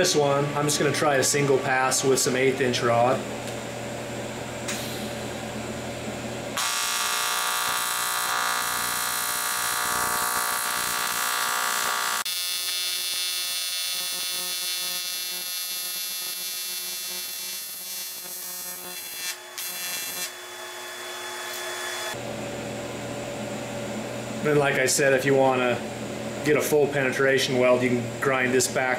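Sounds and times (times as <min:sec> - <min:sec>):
welding arc buzzing: 0:06.5 - 0:22.2.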